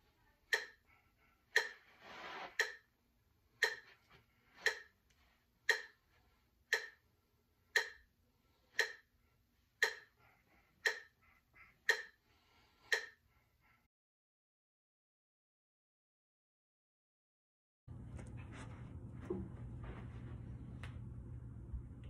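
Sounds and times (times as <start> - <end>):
metronome clicking: 0.5 - 0.8, 1.6 - 1.8, 2.6 - 2.8, 3.6 - 3.9, 4.6 - 4.9, 5.7 - 6.0, 6.7 - 7.0, 7.8 - 8.0, 8.8 - 9.0, 9.8 - 10.1, 12.9 - 13.2.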